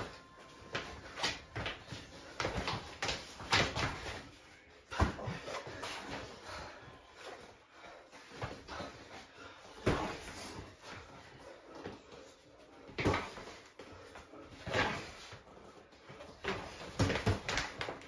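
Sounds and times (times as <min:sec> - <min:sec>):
boxing gloves punching: 0:16.4 - 0:18.0.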